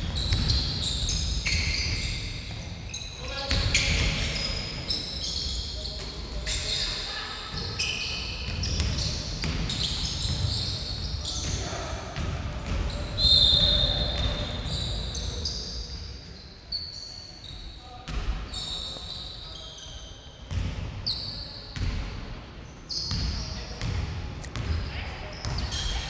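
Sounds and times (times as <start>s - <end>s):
sneakers squeaking on floor: 0.0s - 22.1s, 22.9s - 26.0s
basketball bouncing: 0.2s - 0.7s, 8.5s - 10.4s
players' voices echoing: 3.2s - 15.9s
high squeal: 12.9s - 17.9s, 18.5s - 20.3s.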